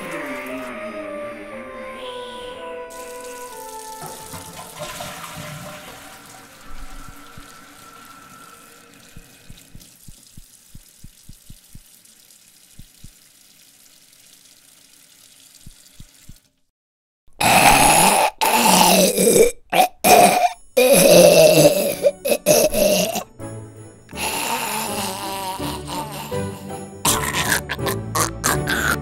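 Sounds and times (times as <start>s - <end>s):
tap running water into basin: 2.9s - 8.0s, 8.9s - 16.6s.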